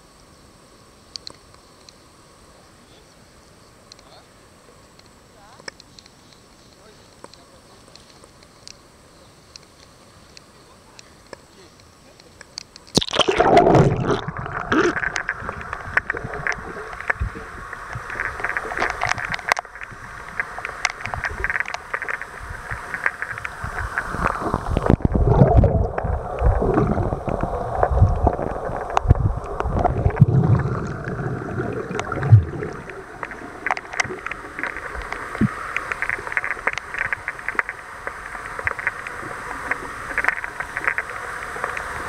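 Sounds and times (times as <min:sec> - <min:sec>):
muffled underwater water noise: 0:00.0 - 0:42.0
underwater clicks: 0:12.2 - 0:41.9.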